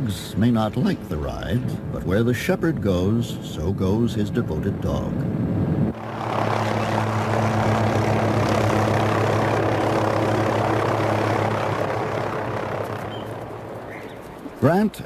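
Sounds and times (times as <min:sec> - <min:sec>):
helicopter engine and rotor: 0:05.9 - 0:14.6.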